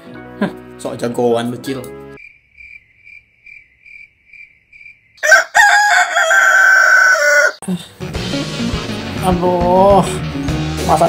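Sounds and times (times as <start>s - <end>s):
cricket chirping: 2.2s - 5.4s
rooster crowing: 5.2s - 7.6s.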